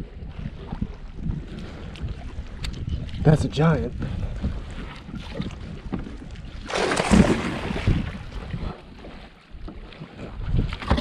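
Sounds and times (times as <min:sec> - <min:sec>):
fish splashing at the surface: 0:06.7 - 0:08.1.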